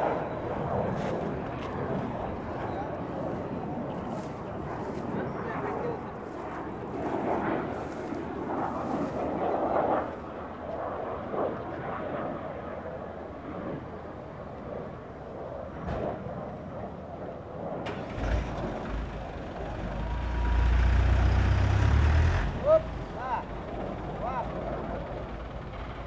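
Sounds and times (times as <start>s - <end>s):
diesel truck engine revving: 17.9s - 26.0s.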